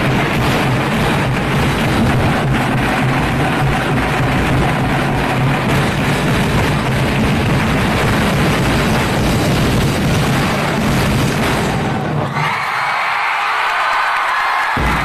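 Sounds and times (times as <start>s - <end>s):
street-dance music with drums: 0.0s - 11.8s
crowd noise: 0.0s - 15.0s.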